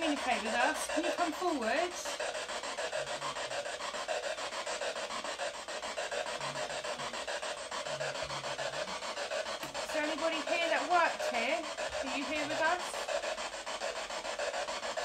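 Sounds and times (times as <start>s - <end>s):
rhythmic rasping hiss: 0.0s - 15.0s.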